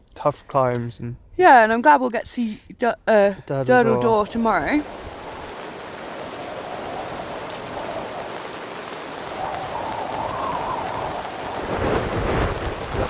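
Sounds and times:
gusting wind: 0:03.7 - 0:13.0
heavy rain on a tent: 0:03.7 - 0:13.0.

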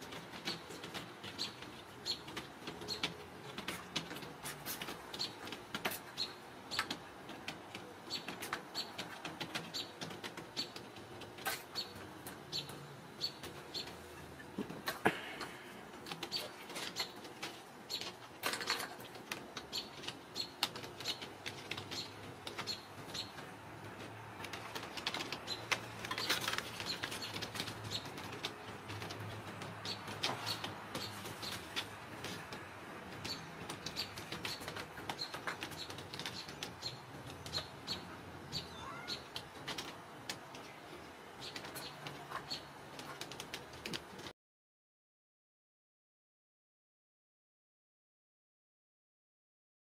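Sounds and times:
small birds chirping: 0:00.0 - 0:44.3
kittens chirping: 0:33.2 - 0:39.9.

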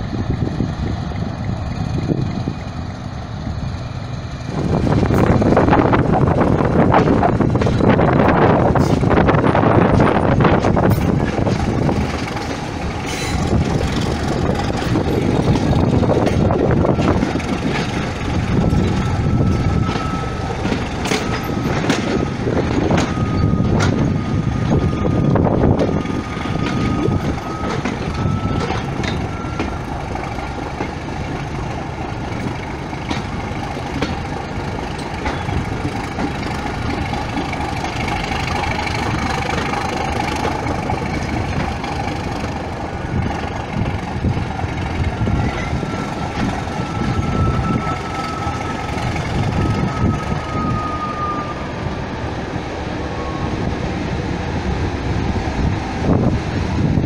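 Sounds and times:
train wheels clicking over rail joints: 0:00.1 - 0:51.9
thin whine: 0:43.2 - 0:51.8.

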